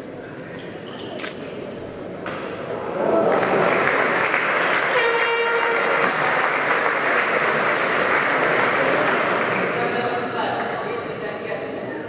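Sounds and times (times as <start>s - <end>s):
audience applauding: 3.0s - 9.9s.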